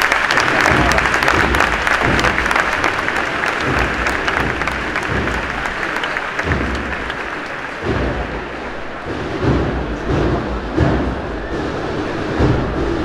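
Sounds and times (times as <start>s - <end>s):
crowd applauding: 0.0s - 10.2s
low thumps: 0.5s - 13.0s.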